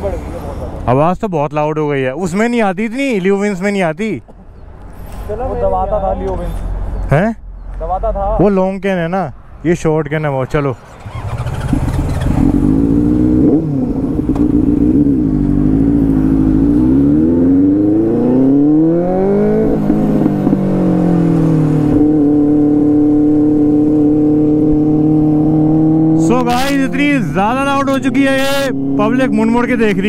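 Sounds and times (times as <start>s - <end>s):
motorcycle engine revving: 10.8s - 30.0s.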